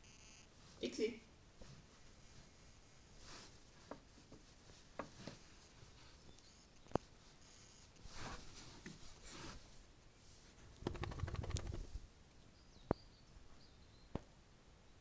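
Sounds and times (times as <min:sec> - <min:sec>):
camera rubbing against dog fur: 0:01.6 - 0:12.0
faint high chirps: 0:06.2 - 0:07.9
sharp clicks: 0:10.8 - 0:11.9.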